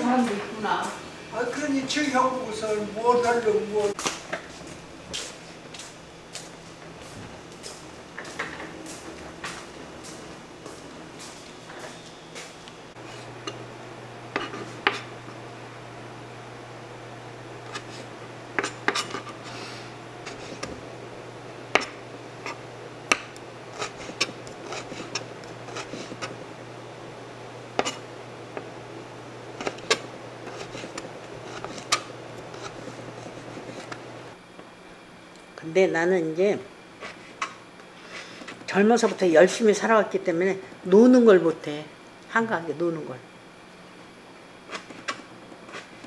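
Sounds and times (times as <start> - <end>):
low hum: 6.8 - 35.1.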